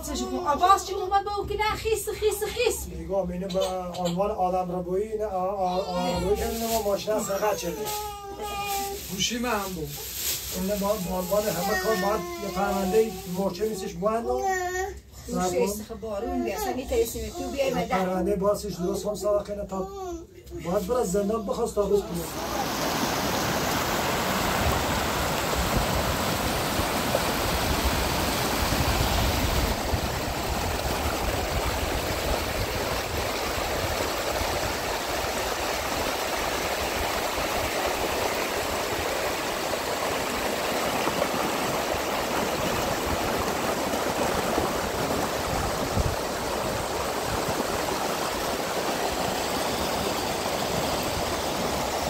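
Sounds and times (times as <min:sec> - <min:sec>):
rushing water: 0:05.6 - 0:14.0, 0:22.0 - 0:52.0.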